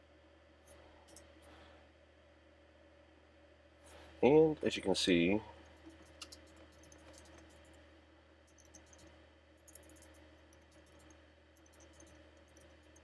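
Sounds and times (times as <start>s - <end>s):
low steady hum: 0.0s - 13.0s
computer keyboard typing: 5.8s - 7.7s, 8.5s - 9.1s, 9.7s - 13.0s.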